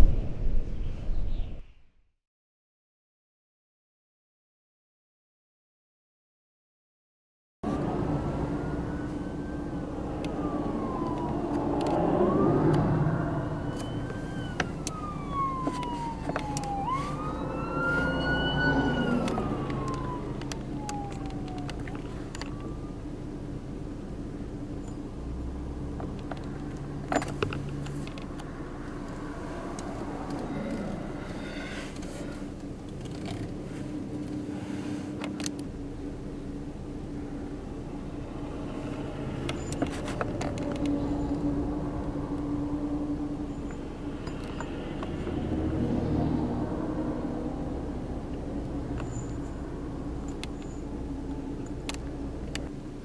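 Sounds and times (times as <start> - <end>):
low engine hum: 7.6 - 53.0
siren wailing: 7.7 - 23.1.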